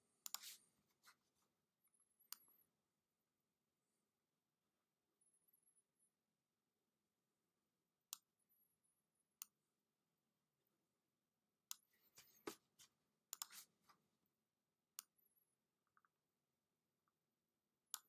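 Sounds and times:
computer mouse clicks: 0:00.2 - 0:00.5, 0:13.3 - 0:13.6.

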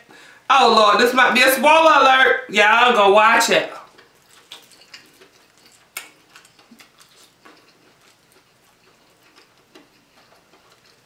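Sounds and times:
fried crust crackling: 0:03.8 - 0:11.0.

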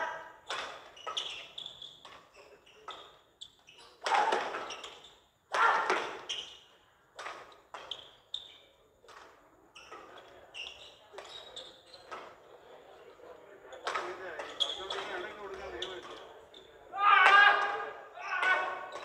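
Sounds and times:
racket hitting shuttlecock: 0:00.4 - 0:03.2, 0:03.8 - 0:06.6, 0:07.2 - 0:08.1, 0:13.8 - 0:16.2, 0:17.2 - 0:19.0
shoes squeaking on court: 0:00.4 - 0:12.8, 0:13.6 - 0:16.9, 0:18.2 - 0:19.0.

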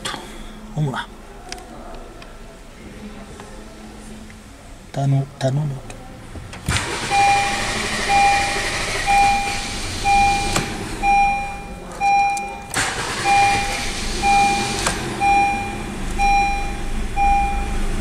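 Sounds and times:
dashboard warning chime: 0:07.1 - 0:17.9.

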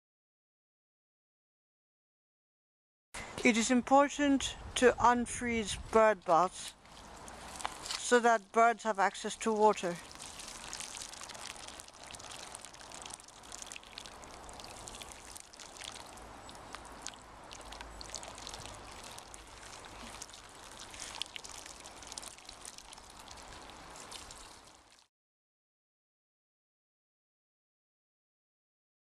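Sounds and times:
water pouring onto ice: 0:06.9 - 0:08.2, 0:09.4 - 0:25.1.

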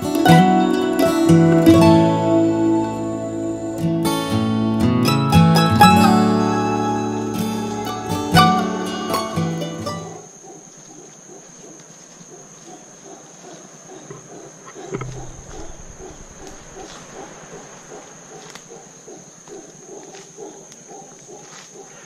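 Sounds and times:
rapid pulsed animal calls: 0:12.4 - 0:22.0.

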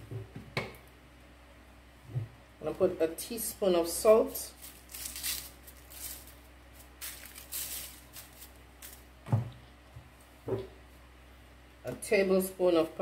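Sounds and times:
salt shaker rustling: 0:04.3 - 0:09.2.

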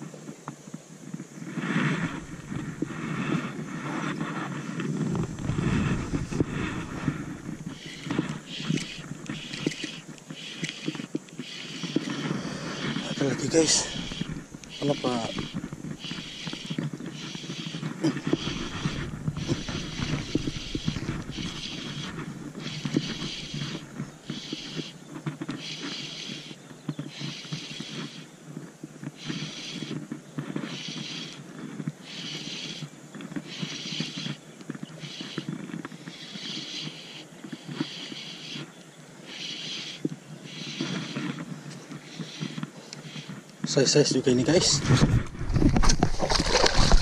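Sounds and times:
fishing reel gears whirring: 0:05.2 - 0:28.3.

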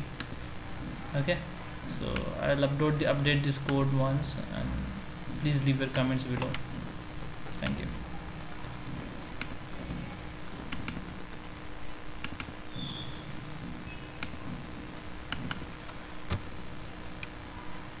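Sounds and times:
low room hum: 0:00.0 - 0:18.0
computer mouse clicking: 0:06.3 - 0:06.6, 0:10.7 - 0:11.0, 0:12.2 - 0:13.6, 0:15.2 - 0:16.5.

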